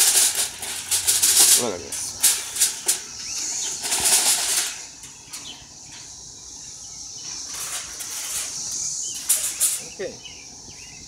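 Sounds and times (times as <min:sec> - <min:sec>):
aluminium foil crinkling: 0:00.0 - 0:05.4
faint steady high hiss: 0:00.0 - 0:11.0.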